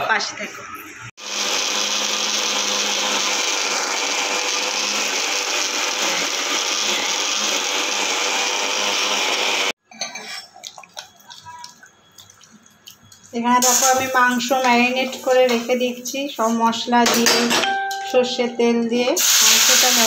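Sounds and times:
electric mixer grinder running: 1.2s - 9.8s.

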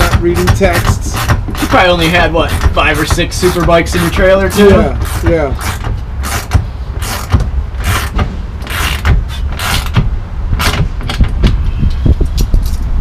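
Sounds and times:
steady low rumble: 0.0s - 13.0s
ratchet wrench strokes: 2.5s - 10.0s.

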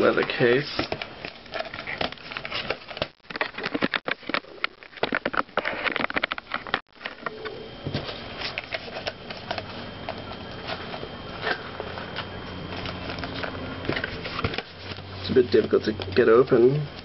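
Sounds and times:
packaging crackling and clicking: 0.2s - 7.3s.

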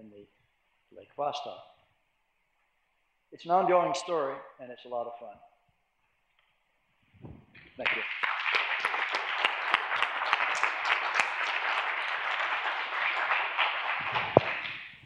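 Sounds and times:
audience applauding: 7.8s - 15.0s.

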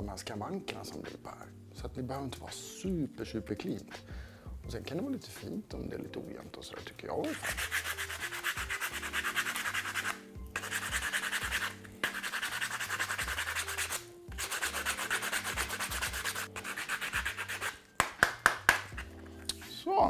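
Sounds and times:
sandpaper rubbing on wood: 7.3s - 17.8s.

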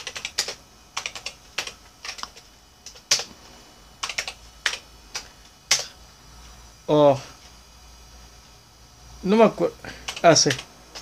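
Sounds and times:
typing on computer keyboard: 0.0s - 3.3s, 4.0s - 5.9s, 10.0s - 11.0s.

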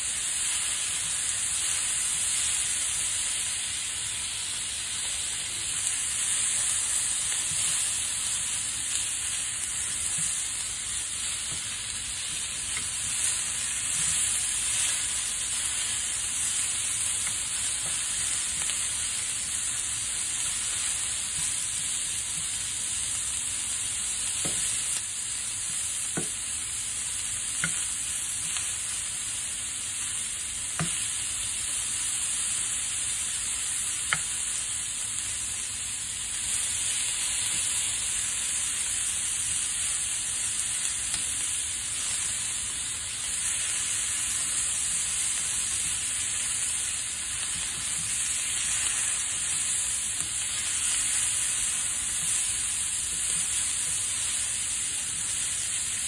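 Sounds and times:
food sizzling in a frying pan: 0.0s - 56.0s
spatula scraping and tapping pan: 11.3s - 15.2s, 27.6s - 28.7s, 30.7s - 31.1s.

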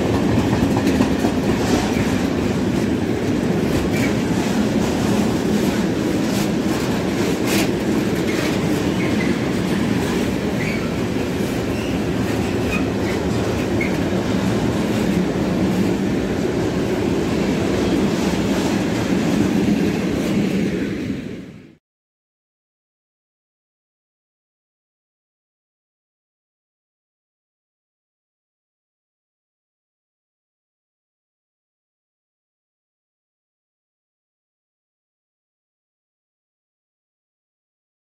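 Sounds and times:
clickety-clack over rail joints: 0.0s - 21.0s
train wheels rumbling on rails: 0.0s - 21.8s
high wheel squeals: 10.6s - 11.0s.

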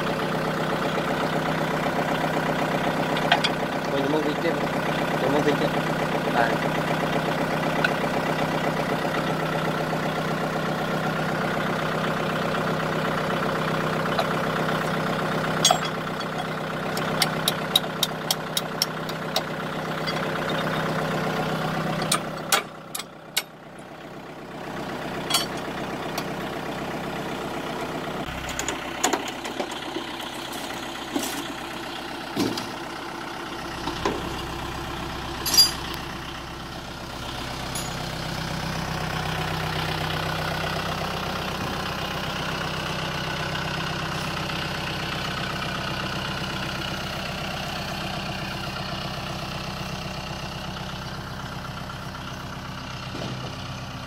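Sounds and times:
tractor diesel engine idling: 0.0s - 54.0s
hitch clanks: 3.1s - 3.6s, 15.6s - 20.9s, 21.9s - 23.6s, 25.2s - 26.3s, 35.4s - 36.0s.

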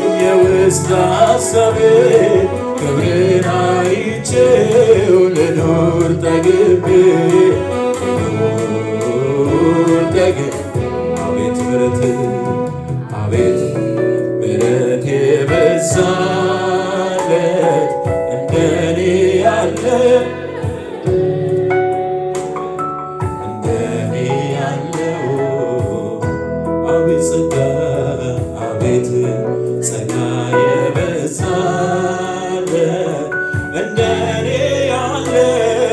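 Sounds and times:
man singing into a microphone: 0.0s - 35.9s
musical accompaniment: 0.0s - 35.9s.

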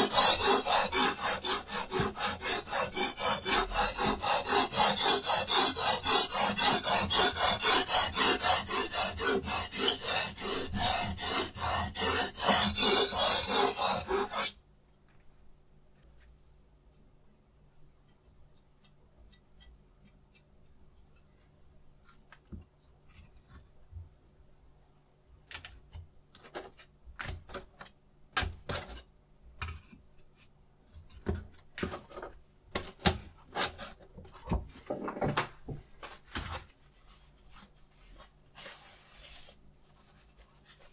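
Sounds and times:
whetstone rasping on knife blade: 0.0s - 14.5s.

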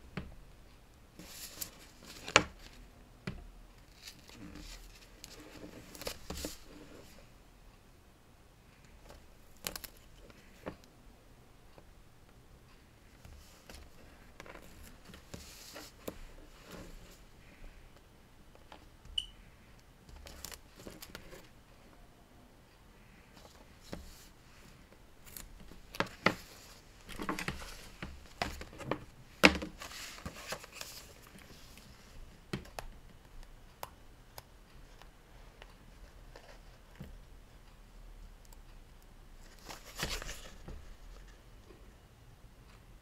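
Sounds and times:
paper rustling: 1.2s - 2.8s, 3.8s - 7.2s, 23.4s - 32.1s, 39.4s - 41.3s.

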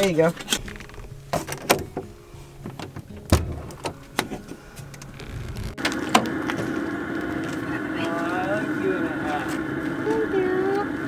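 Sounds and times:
latch clicks: 0.0s - 5.2s
dull thump: 0.8s - 4.6s
steady low hum: 4.4s - 11.0s.

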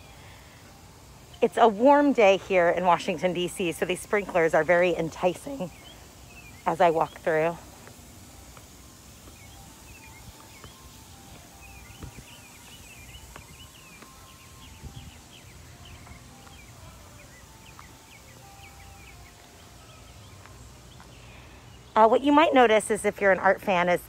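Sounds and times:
small birds chirping: 0.0s - 24.0s
soft thumps: 12.0s - 15.0s.

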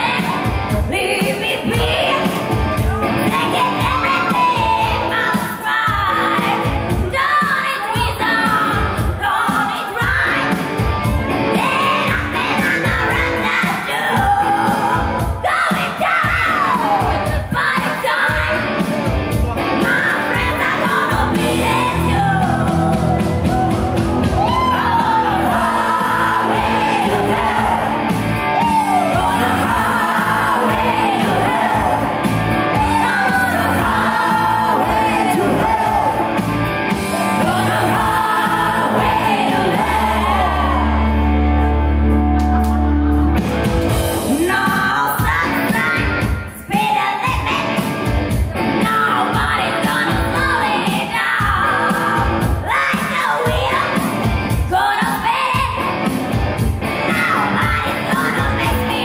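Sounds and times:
woman singing: 0.0s - 2.4s, 3.2s - 10.5s, 11.5s - 18.6s, 19.8s - 23.2s, 32.8s - 36.1s, 44.3s - 47.7s, 48.8s - 55.8s, 57.1s - 59.0s
live band with guitar and keyboard: 0.0s - 59.0s.

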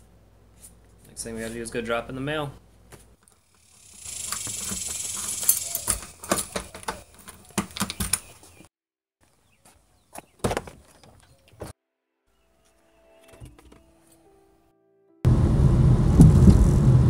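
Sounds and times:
door lock and key rattling: 4.3s - 8.3s.

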